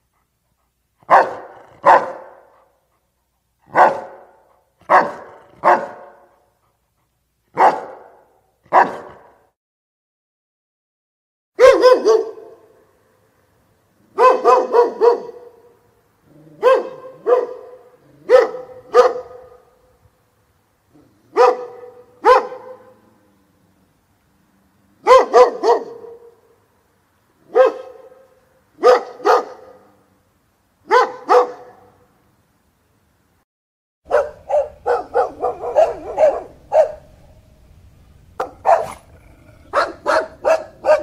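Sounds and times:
dog barking: 1.0 - 2.8, 3.7 - 6.5, 7.5 - 9.5, 11.6 - 12.8, 14.1 - 15.8, 16.6 - 19.8, 21.3 - 23.1, 25.0 - 26.5, 27.4 - 30.1, 30.8 - 32.1, 34.1 - 37.2, 38.4 - 41.0.

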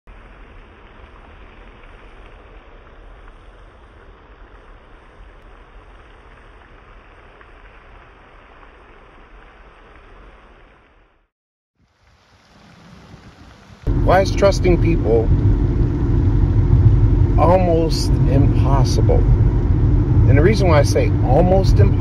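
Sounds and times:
spray fountain hissing: 11.8 - 15.3
wind on microphone: 12.9 - 22.0.

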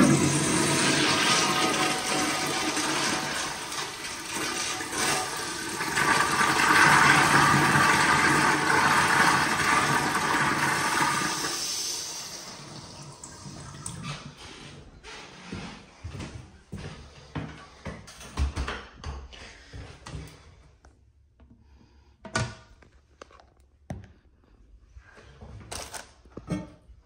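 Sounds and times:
toilet flushing: 0.0 - 14.6.

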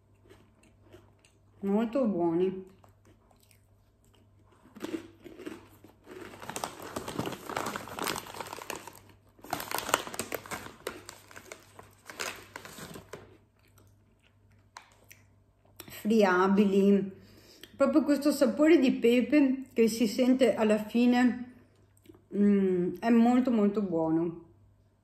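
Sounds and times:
plastic chip bag crinkling: 4.5 - 14.0.

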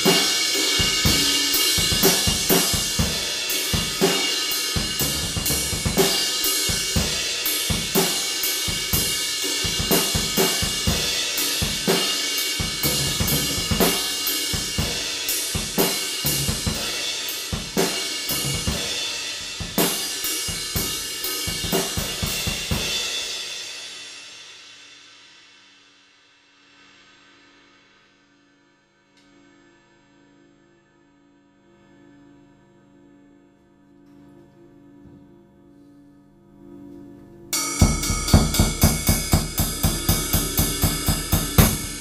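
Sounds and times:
cymbals ringing: 0.0 - 24.0, 37.5 - 42.0
drum kit groove: 0.0 - 24.4, 37.6 - 42.0.

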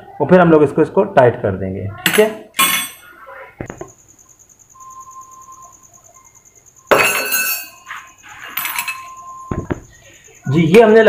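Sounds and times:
metal tools knocking together: 2.0 - 3.1, 6.9 - 9.9.

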